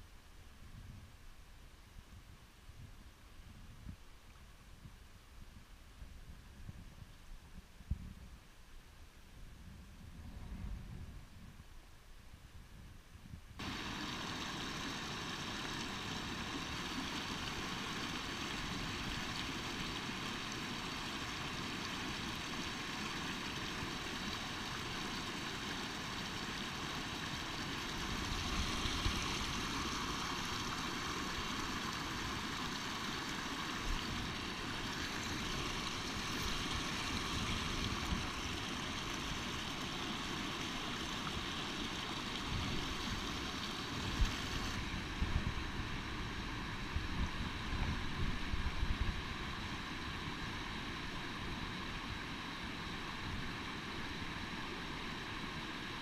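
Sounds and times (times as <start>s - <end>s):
creek water running over rocks: 13.6s - 56.0s.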